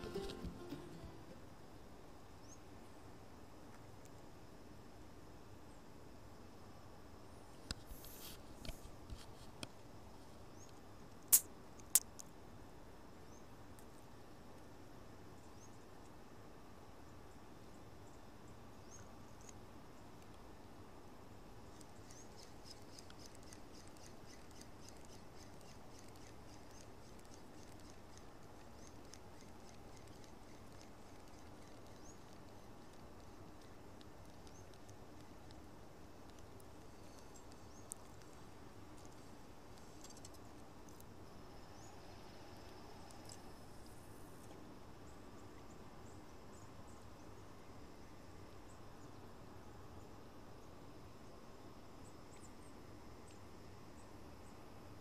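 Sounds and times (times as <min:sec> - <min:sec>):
outdoor background hiss: 0:00.0 - 0:55.0
small birds chirping: 0:17.0 - 0:20.4, 0:21.6 - 0:41.0, 0:41.6 - 0:42.0.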